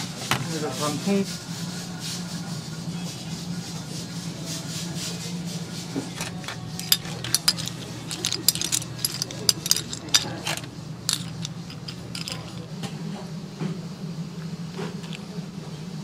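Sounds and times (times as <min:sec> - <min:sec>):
dishes and cutlery clinking: 0:06.0 - 0:12.8.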